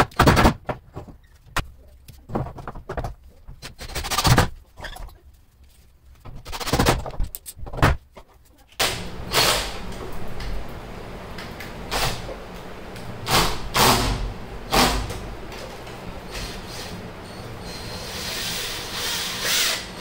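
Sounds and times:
cordless drill driving screws: 0:17.7 - 0:20.0.

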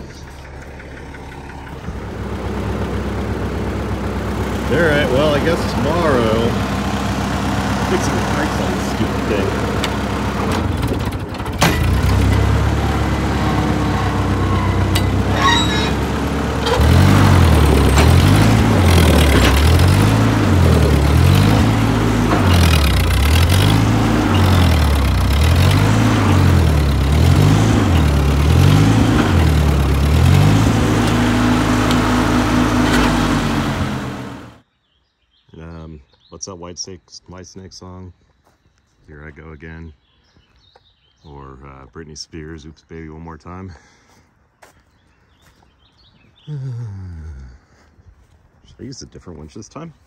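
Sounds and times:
tractor engine running: 0:00.0 - 0:34.6.

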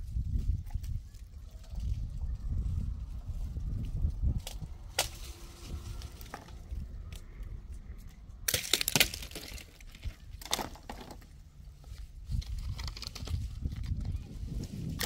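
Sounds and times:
low rumble: 0:00.0 - 0:14.9
cracking and crunching: 0:04.0 - 0:15.0.

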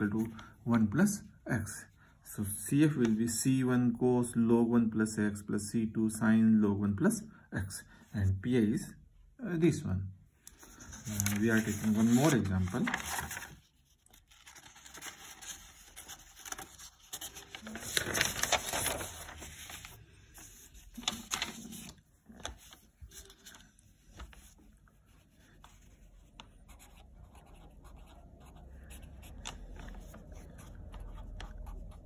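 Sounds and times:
paper rustling: 0:10.5 - 0:28.1, 0:28.7 - 0:32.0
marker writing on paper: 0:25.0 - 0:32.0.

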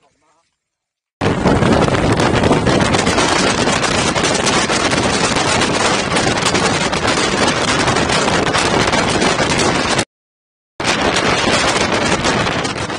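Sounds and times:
wind buffeting microphone: 0:01.2 - 0:10.1, 0:10.8 - 0:12.9
bus running noise: 0:01.3 - 0:10.0.

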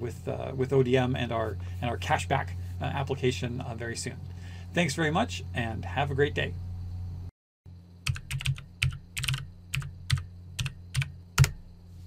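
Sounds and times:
low steady hum: 0:00.0 - 0:12.0
typing on keyboard: 0:08.0 - 0:11.6.

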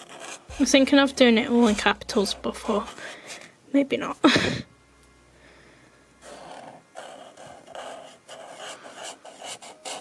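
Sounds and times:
marker scratching on card: 0:00.0 - 0:00.5, 0:06.2 - 0:10.0.

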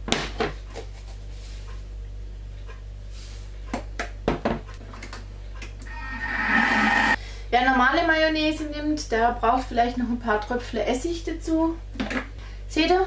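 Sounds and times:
steady low hum: 0:05.2 - 0:07.6.

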